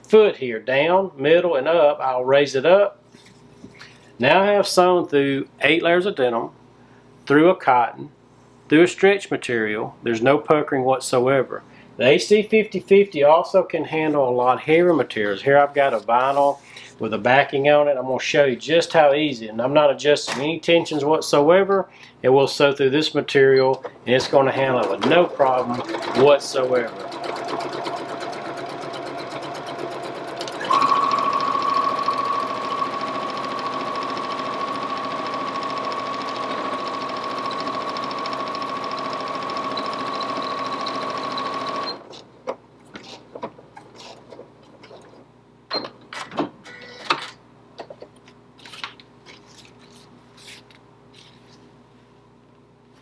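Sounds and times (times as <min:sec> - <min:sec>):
sewing machine stitching: 0:24.6 - 0:42.1.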